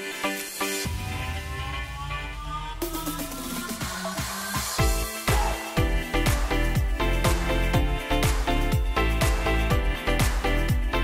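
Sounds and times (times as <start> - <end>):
electronic music: 0.0 - 11.0
deep bass: 0.9 - 4.0, 4.8 - 11.0.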